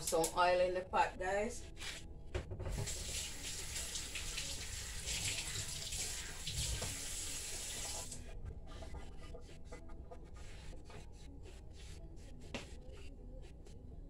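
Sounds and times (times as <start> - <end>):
tap water running into sink: 2.7 - 8.2.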